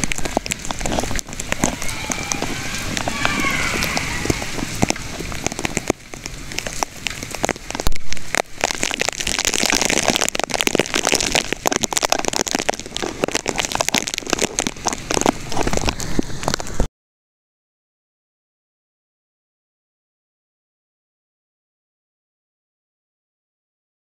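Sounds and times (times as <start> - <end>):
rain falling: 0.0 - 16.9.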